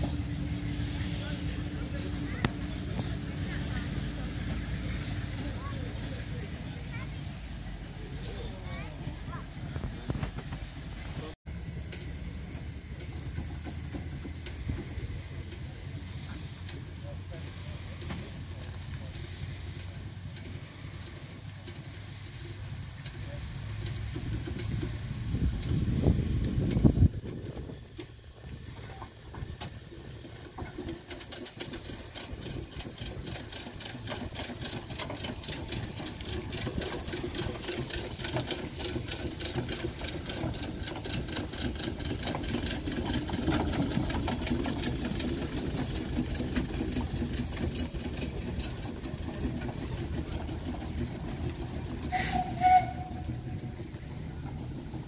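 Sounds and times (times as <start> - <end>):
steam engine exhaust beats and clanks: 0.0 - 55.0
short whistle toot: 52.1 - 53.2.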